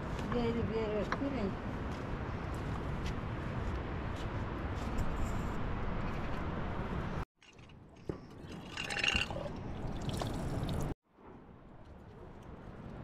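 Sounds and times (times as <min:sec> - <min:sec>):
water filling a jar: 0:08.3 - 0:11.0.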